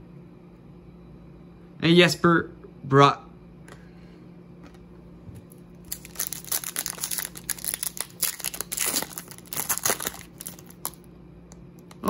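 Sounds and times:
foil wrapper crinkling and tearing: 0:05.8 - 0:11.1.

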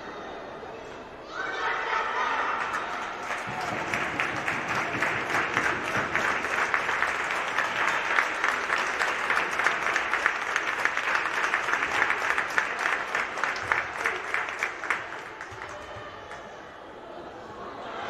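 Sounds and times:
crowd applause: 0:02.2 - 0:16.5.

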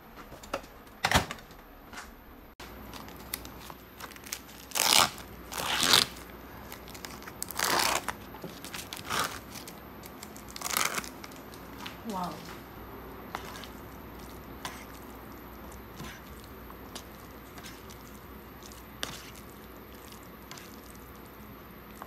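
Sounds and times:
crinkling tearing rustles: 0:02.6 - 0:12.7.

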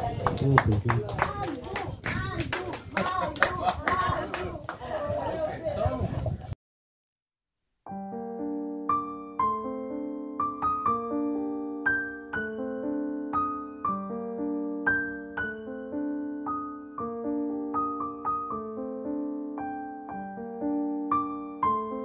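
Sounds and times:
slow piano melody: 0:07.9 - 0:22.0.

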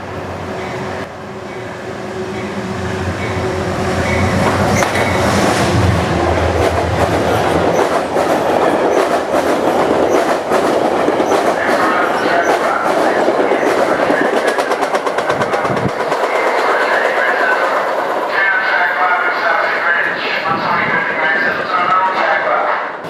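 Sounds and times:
diesel locomotive engine hum: 0:00.0 - 0:23.0
train wheels clickety-clack: 0:04.0 - 0:19.8.

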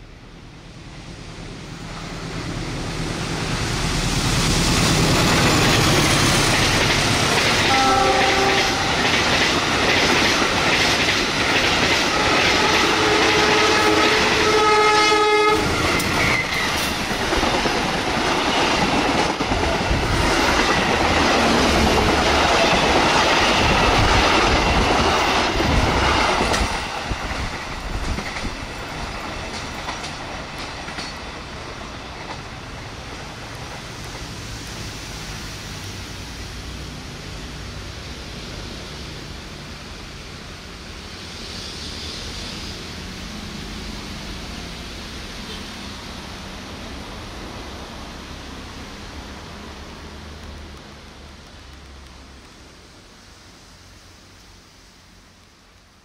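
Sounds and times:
train engine and wheels clattering: 0:00.0 - 0:56.0
multi-tone train horn: 0:07.6 - 0:09.2, 0:12.1 - 0:16.1.

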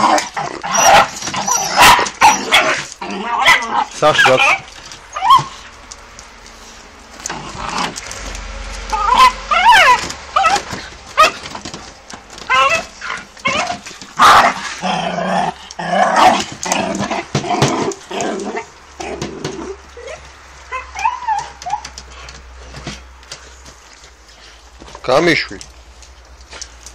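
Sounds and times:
dog yelping and barking: 0:00.0 - 0:05.7, 0:08.9 - 0:15.3, 0:16.0 - 0:22.8.

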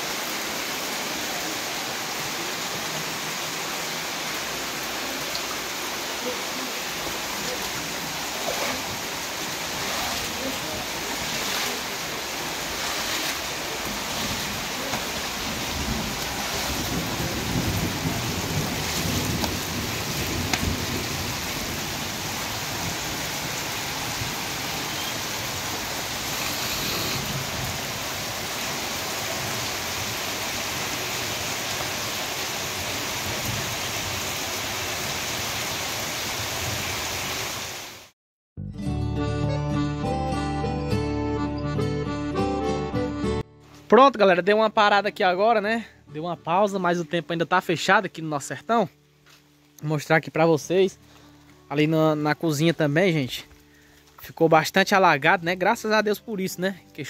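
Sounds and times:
heavy rain splashing in puddles: 0:00.0 - 0:38.1.

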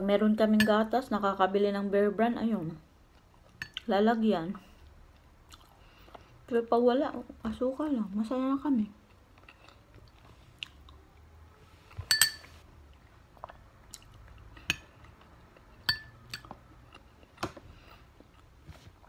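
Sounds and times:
metal spoon clinking glass bowl: 0:00.6 - 0:00.8, 0:12.0 - 0:12.6, 0:15.8 - 0:16.5
soft chewing: 0:03.0 - 0:03.9, 0:04.5 - 0:06.5, 0:08.9 - 0:19.0.

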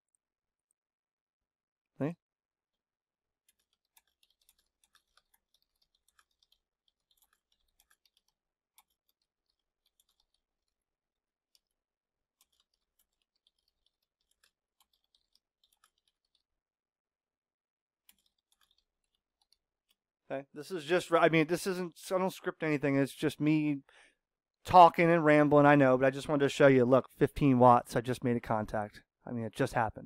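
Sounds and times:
faint typing on keyboard: 0:03.4 - 0:16.6, 0:18.0 - 0:20.1.

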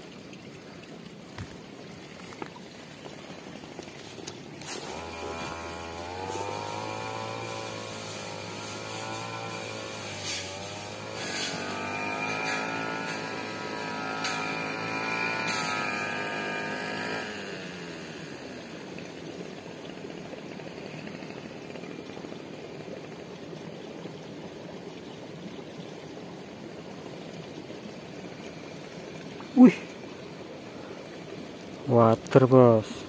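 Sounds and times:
water trickling in a ditch: 0:00.0 - 0:33.0
small engine humming: 0:04.0 - 0:22.3.

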